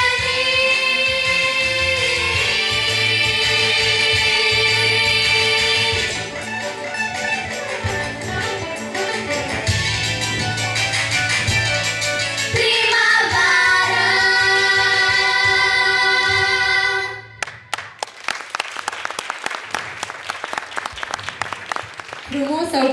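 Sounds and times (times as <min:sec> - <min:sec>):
girls singing over backing track: 0:00.0 - 0:06.5, 0:12.5 - 0:17.4
audience applause: 0:17.4 - 0:22.9.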